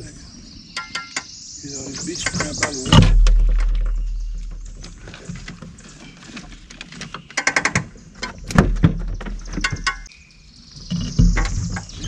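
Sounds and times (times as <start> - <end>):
heavy thumps: 2.2 - 5.7
low rumble: 2.9 - 5.1.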